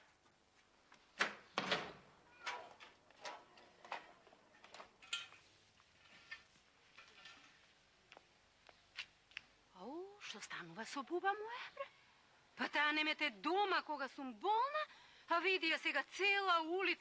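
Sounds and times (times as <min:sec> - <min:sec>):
door slamming: 0:01.2 - 0:02.7.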